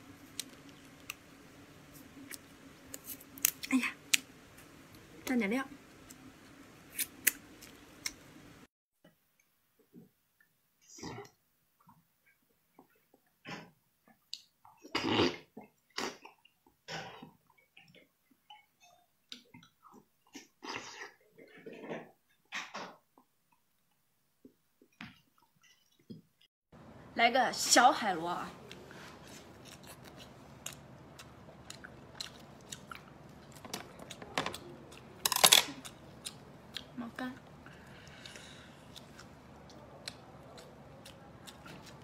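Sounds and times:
crackling squelch of snail meat: 28.6 - 36.9
wet slurping and chewing: 28.6 - 36.9, 37.7 - 42.0.

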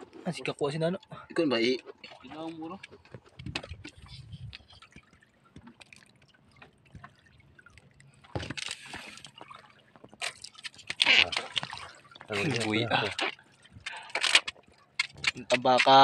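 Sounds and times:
water slopping and dripping: 0.0 - 16.0
water splashes: 0.0 - 16.0.

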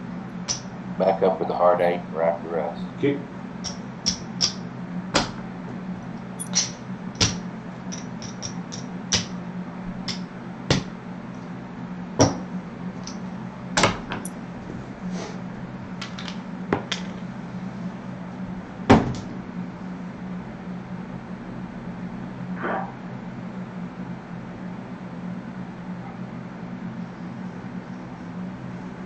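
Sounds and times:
steady low hum: 0.0 - 29.0
casino chips clacking: 6.4 - 9.3.

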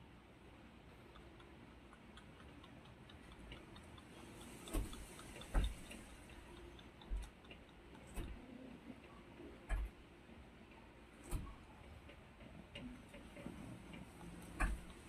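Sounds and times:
kitten suckling with wet clicks: 0.8 - 8.6, 13.0 - 15.0.

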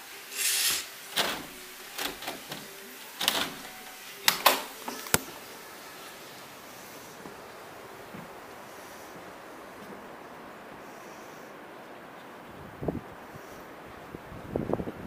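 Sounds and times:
curtain fabric swishing: 0.2 - 5.5
door handle rattling: 1.1 - 4.8
door latch clicking: 1.1 - 5.3.

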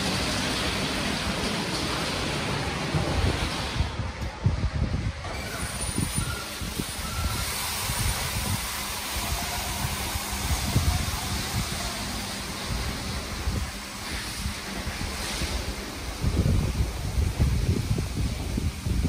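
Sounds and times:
car wash water spray and brushes: 0.0 - 19.0.

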